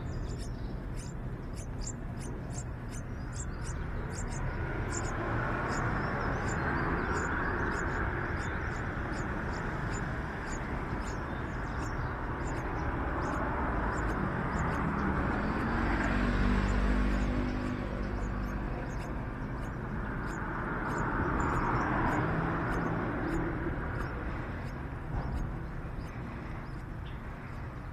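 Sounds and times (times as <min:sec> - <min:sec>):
motor vehicle passing: 0:00.0 - 0:27.9.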